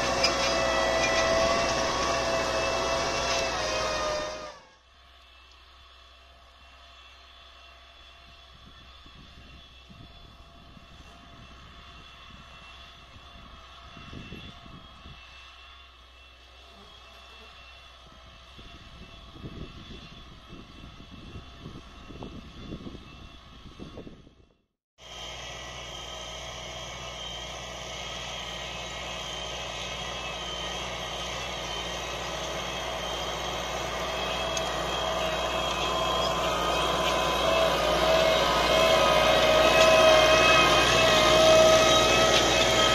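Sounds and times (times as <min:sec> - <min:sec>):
distant tractor diesel engine droning: 0:00.0 - 0:24.3, 0:25.0 - 0:42.9
steady whine: 0:00.0 - 0:24.3, 0:25.0 - 0:42.9
wind rumble on microphone: 0:08.5 - 0:15.3, 0:18.1 - 0:24.6.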